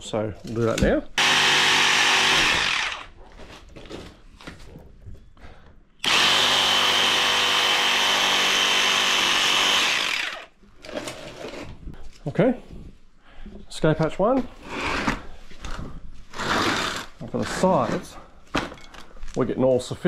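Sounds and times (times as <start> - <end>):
power tool cutting plastic: 1.2 - 3.2, 6.0 - 10.6, 16.3 - 17.2.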